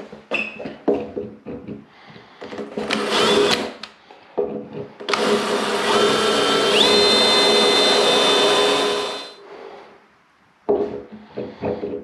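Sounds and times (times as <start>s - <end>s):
cordless drill drilling into tile: 2.9s - 3.8s, 5.1s - 9.4s.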